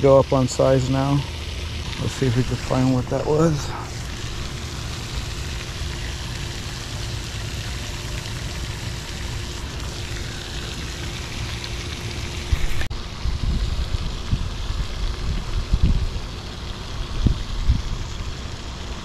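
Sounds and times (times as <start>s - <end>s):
fountain spray hiss: 0.0s - 19.0s
wind rumbling on microphone: 11.9s - 18.6s.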